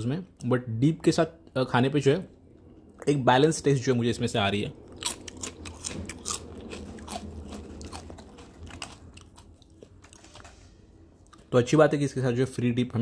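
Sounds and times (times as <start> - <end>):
person chewing crunchy chips: 4.8 - 11.5.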